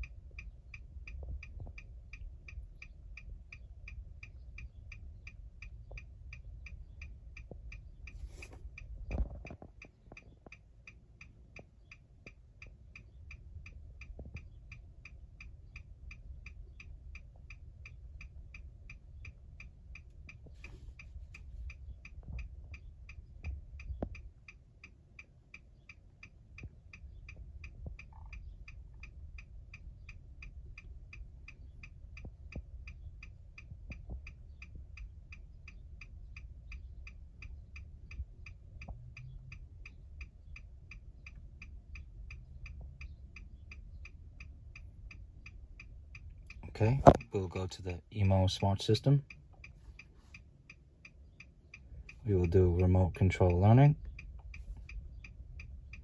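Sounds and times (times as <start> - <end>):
hazard light flasher ticking: 0.0 - 48.0, 48.8 - 56.0.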